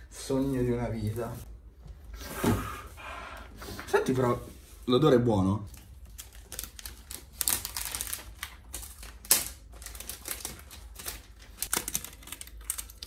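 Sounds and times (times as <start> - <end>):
paper wrap tearing: 6.0 - 13.0.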